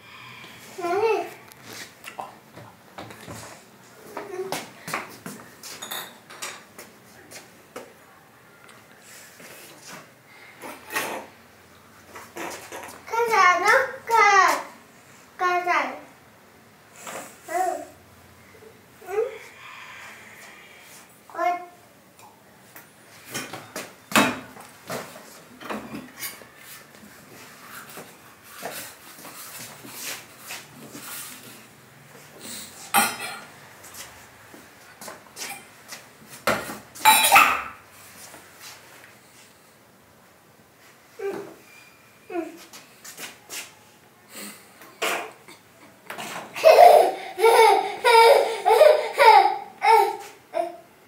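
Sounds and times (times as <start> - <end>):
child laughing: 46.6 - 50.9.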